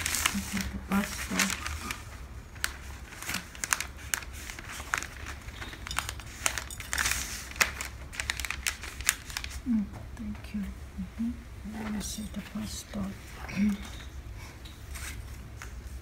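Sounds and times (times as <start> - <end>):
paper rustling and crinkling: 0.0 - 9.8, 14.8 - 16.0.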